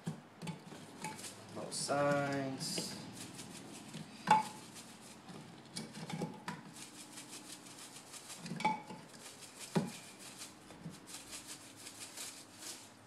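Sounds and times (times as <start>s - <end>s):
shaker bottle rattling hiss: 0.5s - 13.0s.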